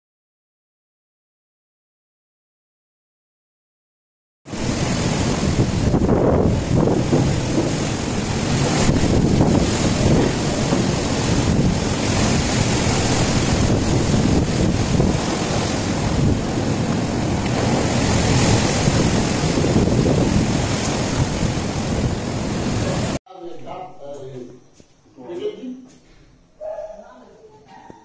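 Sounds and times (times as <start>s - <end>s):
strong wind rushing through trees: 4.5s - 23.2s
wind buffeting microphone: 4.5s - 23.2s.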